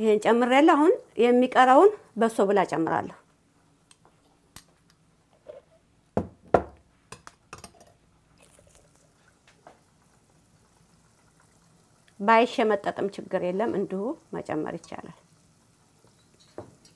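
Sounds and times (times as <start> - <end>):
butter bubbling in a pot: 7.5 - 16.9.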